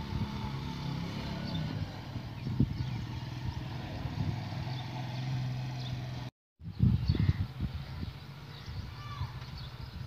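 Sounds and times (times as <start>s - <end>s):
motorcycle engine running: 0.0s - 6.3s.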